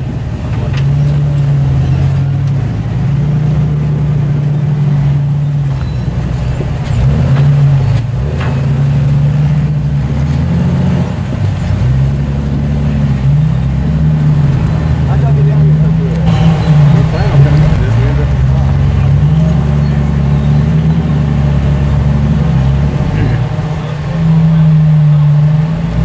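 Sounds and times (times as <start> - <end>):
off-road engines at low revs: 0.0 - 26.0.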